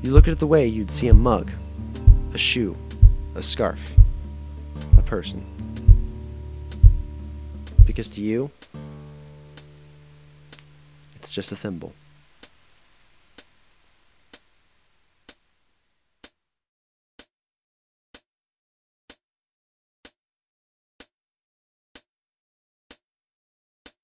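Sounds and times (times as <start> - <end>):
clock ticking: 0.0 - 4.3, 4.9 - 7.1, 7.7 - 8.1
faint background hiss: 0.0 - 16.2.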